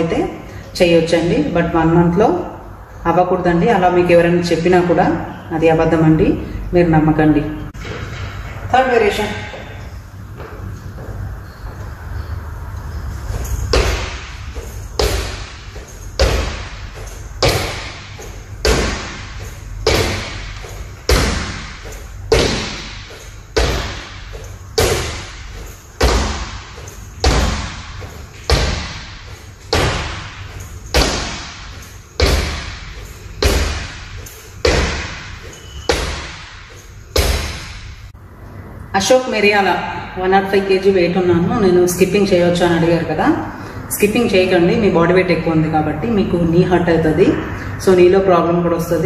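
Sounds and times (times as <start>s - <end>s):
feet thudding on wooden floor: 13.3s - 38.0s.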